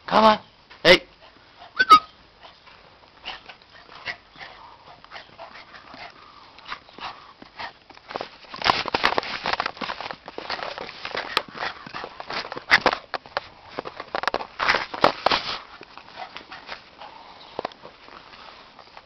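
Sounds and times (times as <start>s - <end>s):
puppy whimpering: 1.7s - 2.2s
paws clicking and scuffing: 2.4s - 19.0s.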